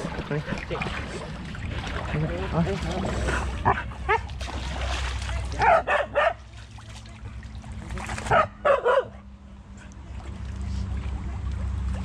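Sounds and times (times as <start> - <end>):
dog barking: 5.6 - 6.4, 8.3 - 9.3.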